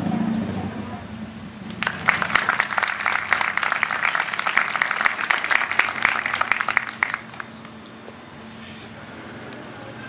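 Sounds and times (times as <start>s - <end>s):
audience applauding: 1.7s - 7.8s.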